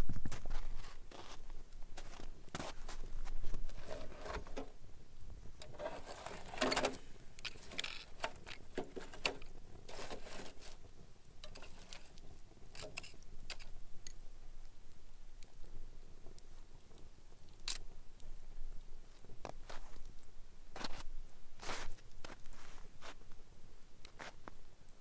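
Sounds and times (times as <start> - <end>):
crunching noises: 0.0 - 14.2
wood fire crackling: 0.0 - 25.0.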